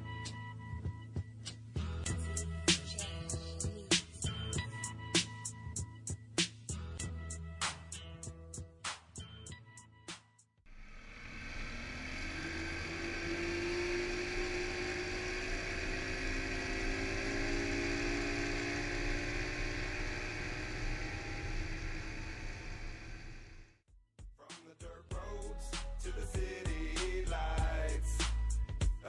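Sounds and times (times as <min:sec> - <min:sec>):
outboard motor at speed: 0:10.8 - 0:23.7.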